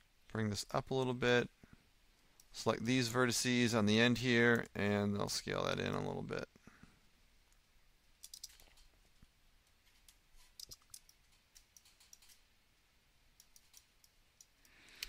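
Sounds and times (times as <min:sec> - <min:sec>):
mouse and keyboard clicks: 0:08.2 - 0:08.9, 0:10.0 - 0:12.4, 0:13.4 - 0:15.0.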